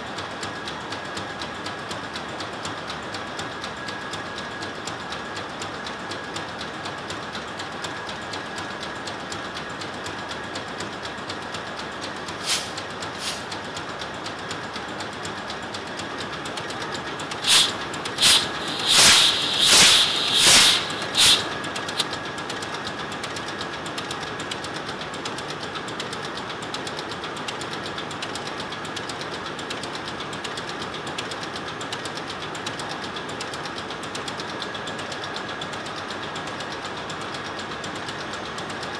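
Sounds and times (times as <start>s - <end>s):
constant engine whine: 0.0s - 38.9s
diesel engine clatter: 0.0s - 38.9s
loud puffs of gas: 12.4s - 13.5s, 17.4s - 22.0s.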